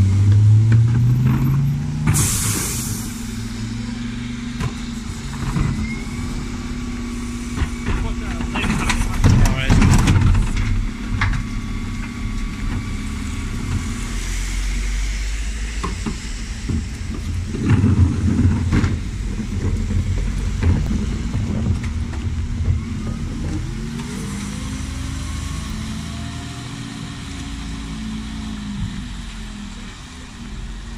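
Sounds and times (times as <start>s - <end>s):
truck diesel engine pulling away: 0.0s - 30.9s
clunks: 4.4s - 6.7s, 7.5s - 13.0s, 15.8s - 24.6s.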